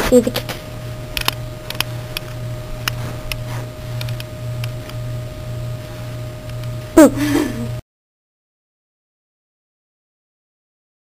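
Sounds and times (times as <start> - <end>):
pulsing low hum: 0.0 - 7.8.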